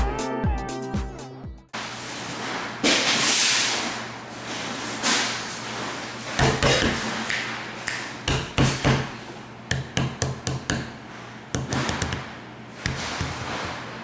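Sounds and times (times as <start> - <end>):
sharp knocks: 9.7 - 13.7.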